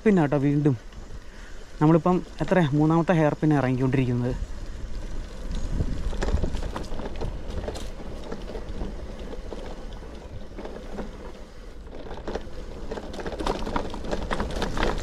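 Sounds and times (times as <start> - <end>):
wind on microphone: 4.3 - 9.6
tyres rumbling on concrete: 5.8 - 15.0.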